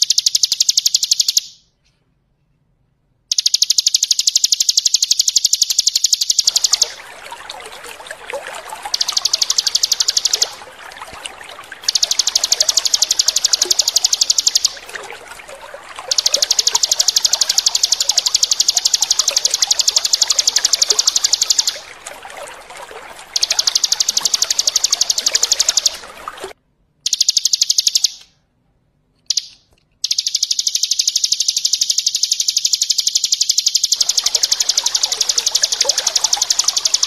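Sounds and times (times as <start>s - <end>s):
water trickling: 3.8s - 26.6s, 33.9s - 37.0s.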